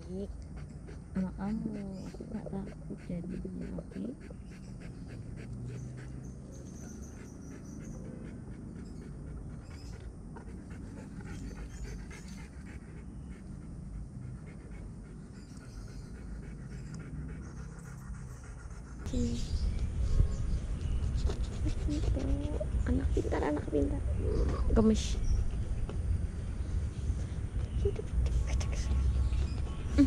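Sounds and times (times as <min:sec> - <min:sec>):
dog panting: 0:00.1 - 0:19.4, 0:20.8 - 0:23.9.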